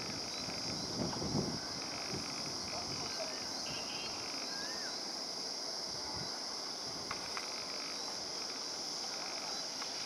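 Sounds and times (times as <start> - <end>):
high-pitched insect drone: 0.0 - 10.0
whistled chirp: 4.4 - 5.0
faint ticks: 7.0 - 10.0.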